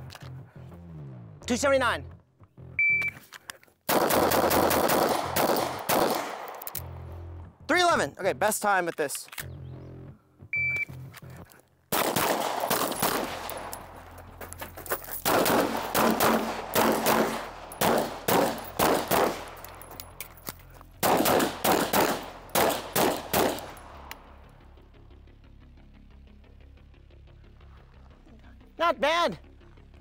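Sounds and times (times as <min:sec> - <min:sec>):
shot timer beep: 0:02.8 - 0:03.2, 0:10.5 - 0:10.9
pistol shots: 0:03.9 - 0:06.9, 0:11.9 - 0:14.2, 0:15.2 - 0:19.9, 0:21.0 - 0:24.3.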